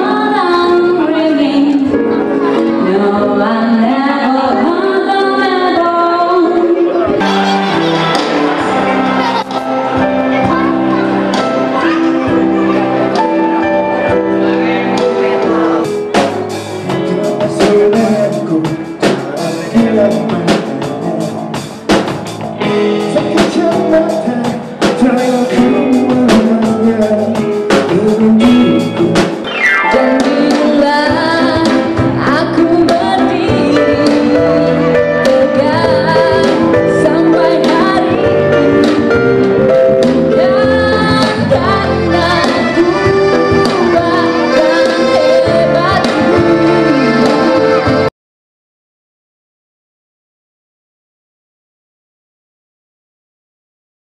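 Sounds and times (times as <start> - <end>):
woman singing into a microphone: 0.0 - 7.2, 30.1 - 39.2, 40.1 - 47.9
live band playing: 0.0 - 48.1
music: 0.0 - 48.1.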